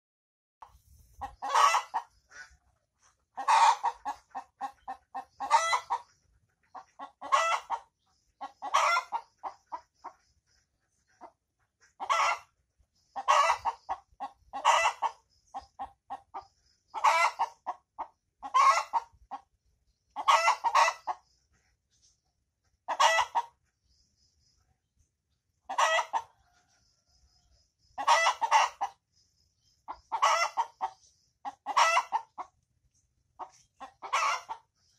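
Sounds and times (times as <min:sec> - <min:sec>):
hen cackling and squawking: 0:00.6 - 0:10.3, 0:10.9 - 0:19.5, 0:20.1 - 0:21.3, 0:22.9 - 0:23.6, 0:25.6 - 0:26.6, 0:28.0 - 0:29.0, 0:29.9 - 0:32.6, 0:33.4 - 0:34.9.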